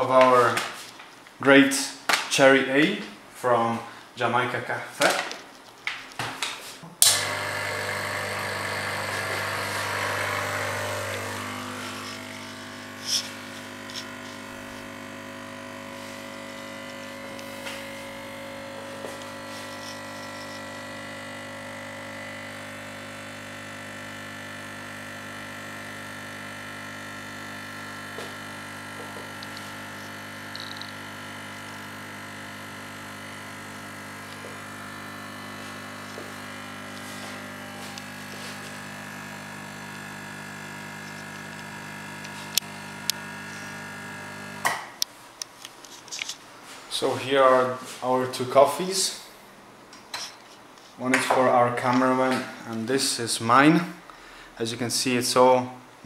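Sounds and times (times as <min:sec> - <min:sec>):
espresso machine pump buzzing: 0:07.0 - 0:45.1, 0:45.9 - 0:50.4, 0:51.0 - 0:53.4.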